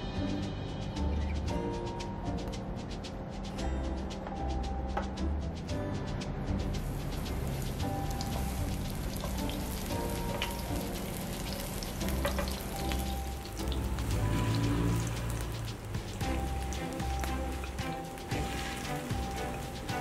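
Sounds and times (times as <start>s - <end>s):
background music: 0.0s - 20.0s
eggplant sizzling in hot oil: 6.7s - 20.0s.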